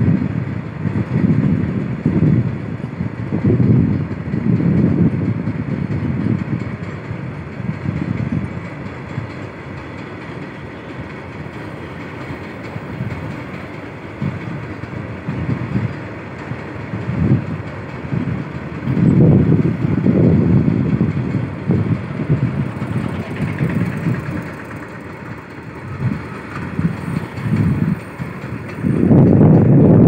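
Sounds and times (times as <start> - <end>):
freight train wheels clattering: 0.0 - 30.0.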